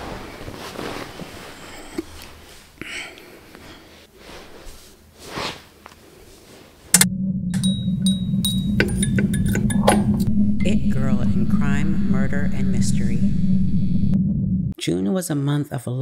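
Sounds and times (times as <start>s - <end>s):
clothing and cushions rustling: 0.0s - 6.9s
intro music with droning: 7.0s - 14.8s.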